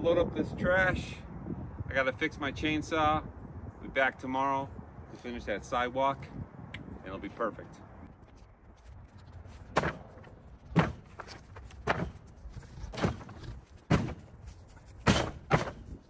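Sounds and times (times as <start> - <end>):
debris thudding into truck bed: 12.9 - 14.3, 15.0 - 15.9.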